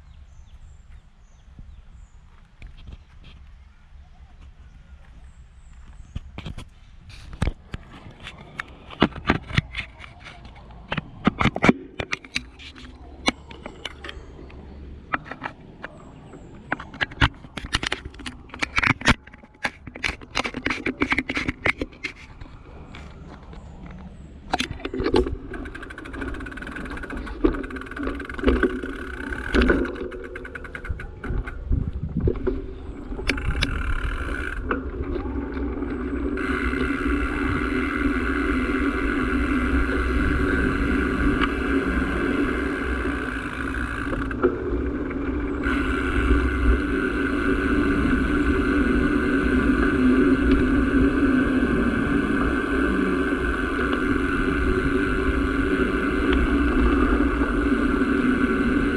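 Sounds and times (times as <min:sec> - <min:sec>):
small vehicle engine running: 0:22.9 - 0:58.9.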